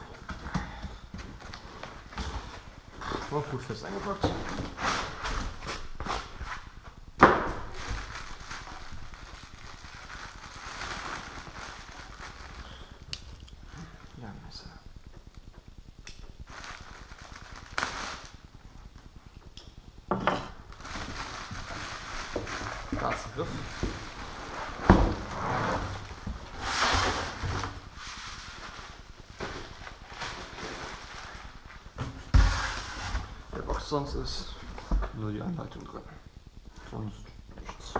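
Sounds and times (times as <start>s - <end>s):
plastic wrapping rustling: 1.1s - 14.8s, 16.2s - 19.4s, 20.5s - 35.9s
plastic bag crinkling: 7.6s - 14.3s, 16.4s - 18.8s, 20.6s - 31.9s
styrofoam pulled from box: 24.4s - 28.8s.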